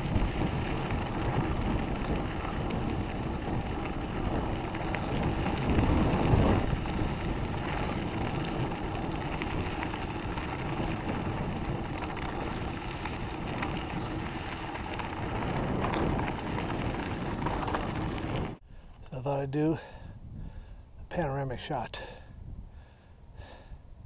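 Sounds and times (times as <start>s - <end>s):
bike tyres crunching on gravel: 0.0s - 18.6s
wind on microphone: 0.0s - 18.6s, 20.0s - 21.0s, 22.3s - 22.8s.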